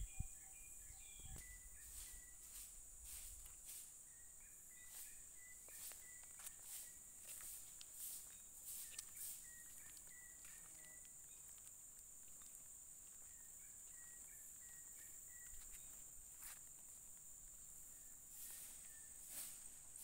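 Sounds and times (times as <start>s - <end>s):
high-pitched insect drone: 0.0s - 10.4s, 17.8s - 20.0s.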